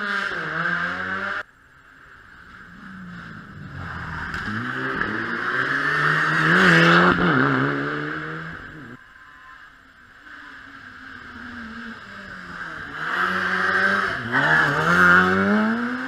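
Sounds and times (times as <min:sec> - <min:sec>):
rally car engine revving: 0:02.5 - 0:09.0, 0:10.3 - 0:16.0.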